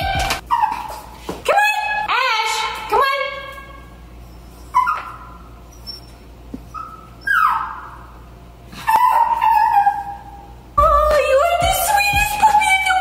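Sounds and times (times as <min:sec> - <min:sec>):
small dog whining: 0:04.4 - 0:08.0, 0:08.8 - 0:10.5.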